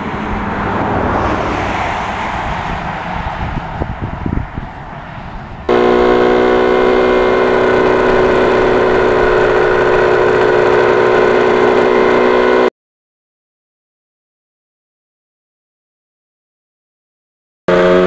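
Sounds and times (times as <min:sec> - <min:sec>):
outdoor noise: 0:00.0 - 0:12.7, 0:17.7 - 0:18.0
two-stroke motorcycle engine running: 0:05.7 - 0:12.7, 0:17.7 - 0:18.0.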